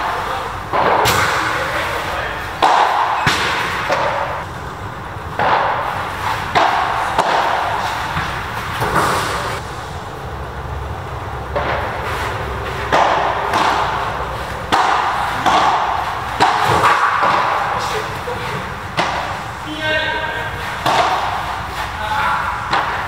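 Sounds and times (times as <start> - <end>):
rackets striking ball: 0.0 - 23.0
ball bouncing: 2.6 - 4.5, 5.3 - 9.6, 11.4 - 19.5, 20.8 - 21.7.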